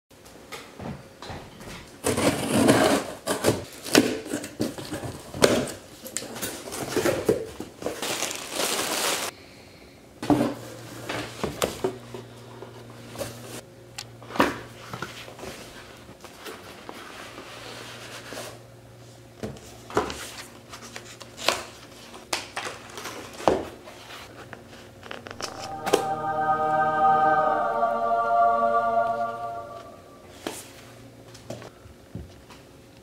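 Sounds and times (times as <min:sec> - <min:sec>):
cardboard and paper rustling: 0:06.4 - 0:09.3.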